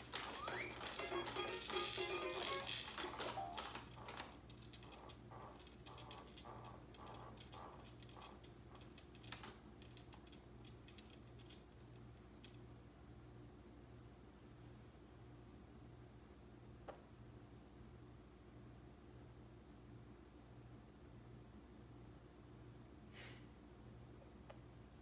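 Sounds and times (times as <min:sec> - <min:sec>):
electronic toy music: 0:00.0 - 0:03.8.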